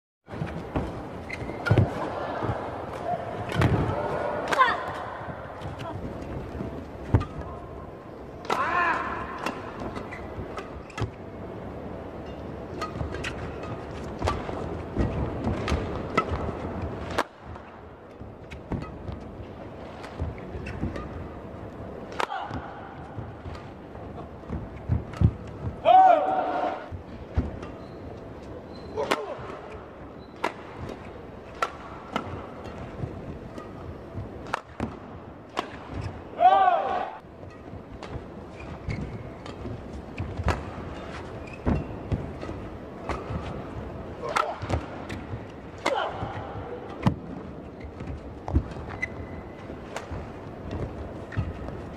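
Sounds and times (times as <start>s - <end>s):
indoor crowd murmur: 0.6s - 9.9s
racket hitting shuttlecock: 3.0s - 5.9s, 12.3s - 21.3s, 22.0s - 23.8s, 29.0s - 36.2s, 37.4s - 43.6s, 44.2s - 47.3s, 48.0s - 51.8s
racket striking shuttlecock: 22.1s - 22.7s, 30.3s - 36.1s, 39.4s - 43.6s.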